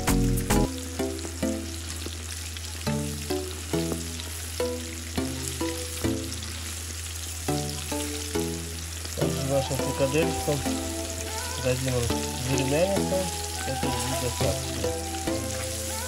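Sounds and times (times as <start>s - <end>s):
meatballs deep-frying in oil: 0.0s - 16.0s
background music with drone: 7.5s - 16.0s.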